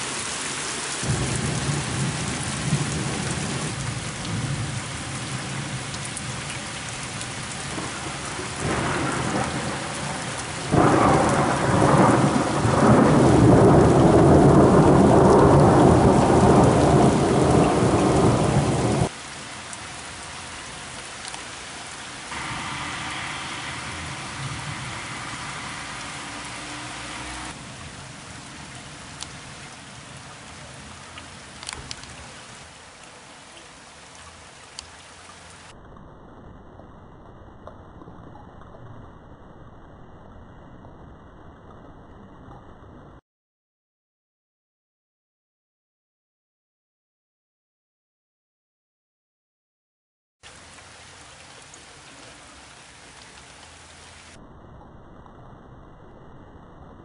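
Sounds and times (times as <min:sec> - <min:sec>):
steady rain: 0:00.0 - 0:43.2, 0:50.4 - 0:57.0
rolling thunder: 0:01.0 - 0:05.8, 0:07.6 - 0:19.1, 0:22.3 - 0:27.7.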